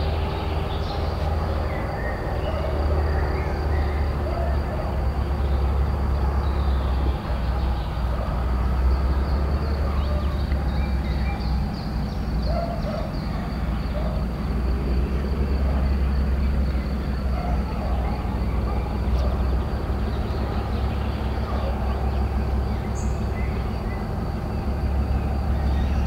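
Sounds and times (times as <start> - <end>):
locomotive diesel engine drone: 0.0 - 26.0.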